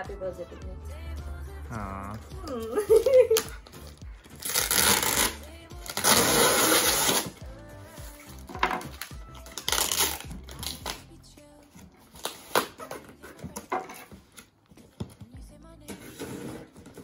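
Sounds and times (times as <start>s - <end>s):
packing tape ripping: 2.5s - 7.4s, 8.7s - 11.1s, 12.1s - 14.5s
tape scraping cardboard: 4.4s - 7.4s, 15.9s - 17.0s.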